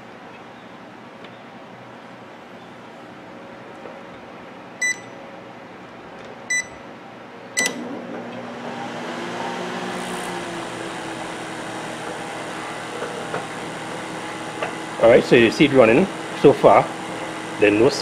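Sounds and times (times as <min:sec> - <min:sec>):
microwave oven humming: 0:00.0 - 0:18.0
microwave keypad beeps: 0:04.8 - 0:05.2, 0:06.5 - 0:06.8
microwave click: 0:07.6 - 0:08.5.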